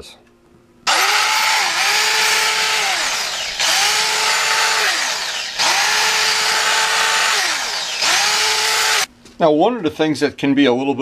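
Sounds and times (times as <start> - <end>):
drill sanding metal hub: 0.9 - 9.1.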